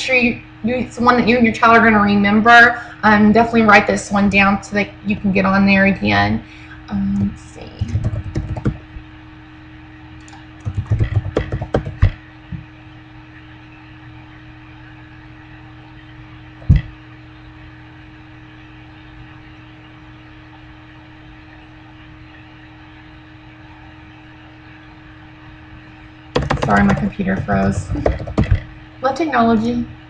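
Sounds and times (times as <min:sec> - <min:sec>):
steady low hum: 0:00.0 - 0:30.0
computer keyboard typing: 0:07.2 - 0:08.8, 0:10.2 - 0:12.2, 0:26.4 - 0:28.7.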